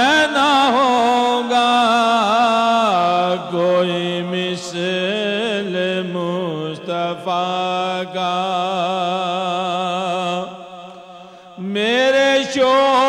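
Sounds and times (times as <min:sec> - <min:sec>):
man chanting: 0:00.0 - 0:10.9, 0:11.5 - 0:13.0
breath: 0:10.9 - 0:11.6.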